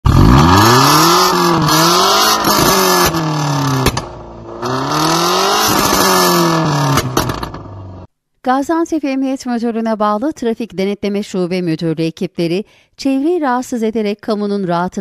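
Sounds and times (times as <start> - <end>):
loud car engine revving: 0.0 - 8.1
exhaust cracks and pops: 2.4 - 4.8, 5.5 - 7.9.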